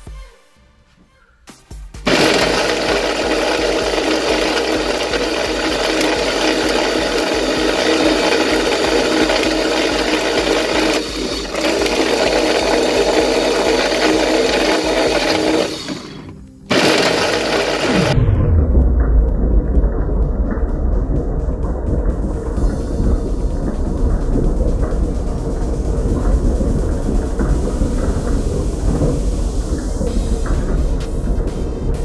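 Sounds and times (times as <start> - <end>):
blender motor running: 2.1 - 18.2.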